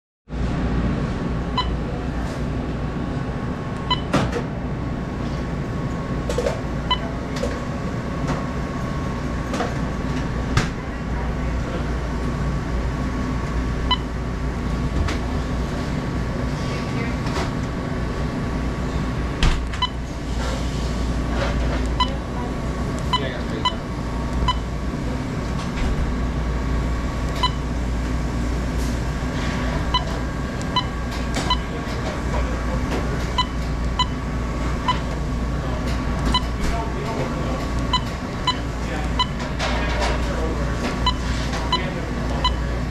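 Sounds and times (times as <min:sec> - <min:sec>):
steady low hum: 0:00.3 - 0:42.9
short electronic beeps: 0:01.5 - 0:01.8, 0:03.8 - 0:04.1, 0:13.9 - 0:14.1, 0:23.1 - 0:24.7, 0:27.4 - 0:27.6, 0:30.7 - 0:31.7, 0:33.4 - 0:34.2, 0:37.9 - 0:39.4, 0:41.0 - 0:42.7.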